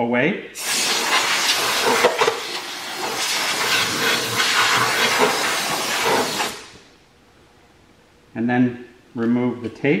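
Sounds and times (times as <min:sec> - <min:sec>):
compressed air gun hissing: 0:00.6 - 0:06.9.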